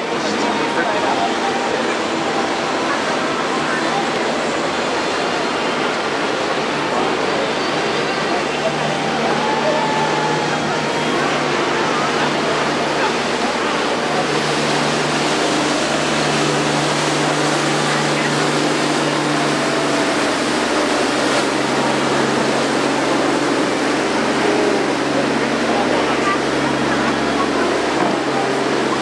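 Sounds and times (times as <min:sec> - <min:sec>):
faint voices: 0:00.0 - 0:29.0
low engine drone: 0:00.0 - 0:29.0
water rushing: 0:00.0 - 0:29.0.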